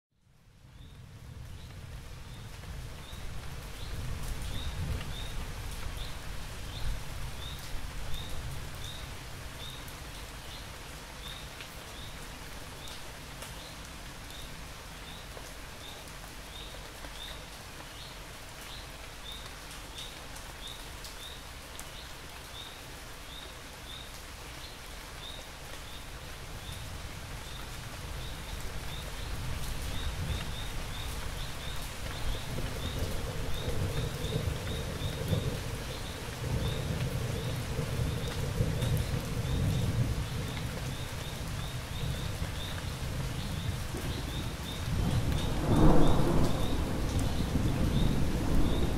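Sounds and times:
light rain hiss: 0.2s - 48.9s.

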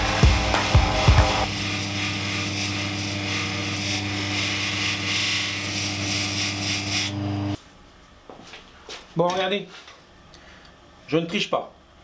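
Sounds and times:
sharpening wheel motor hum: 0.0s - 7.6s
chisel rubbing on wheel: 0.7s - 7.2s.

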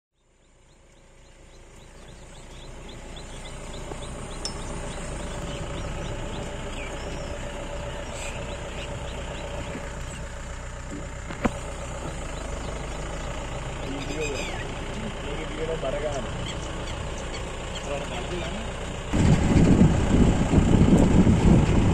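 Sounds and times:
faint chirps: 0.2s - 10.3s
jeep engine running: 0.2s - 21.9s
light high ticking: 0.8s - 7.4s.

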